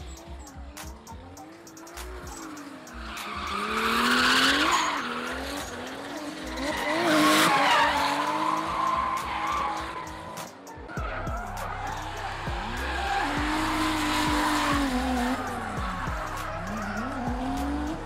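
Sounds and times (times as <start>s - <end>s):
tyres squealing and skidding: 0.0s - 18.0s
car engine revving hard: 1.4s - 10.4s, 11.2s - 18.0s.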